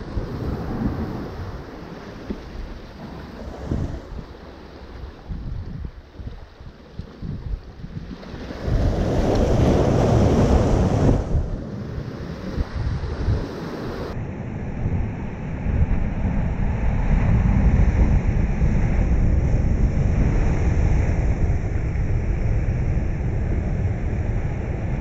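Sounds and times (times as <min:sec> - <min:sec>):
wind buffeting microphone: 0:00.0 - 0:25.0
waves washing over rocks: 0:07.9 - 0:14.2.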